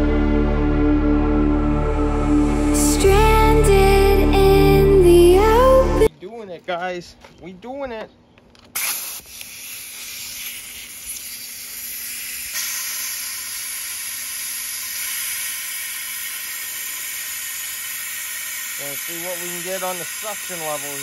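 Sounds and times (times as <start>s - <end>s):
compressed air hissing: 8.8s - 21.0s.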